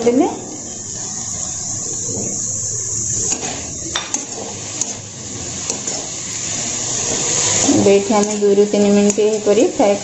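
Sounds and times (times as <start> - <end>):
mushrooms sizzling in oil: 0.0 - 10.0
spatula scraping metal pan: 3.2 - 9.4.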